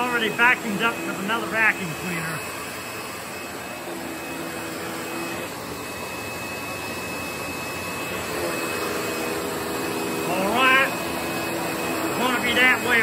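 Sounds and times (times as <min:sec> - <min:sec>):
vacuum cleaner whining: 0:00.0 - 0:13.0.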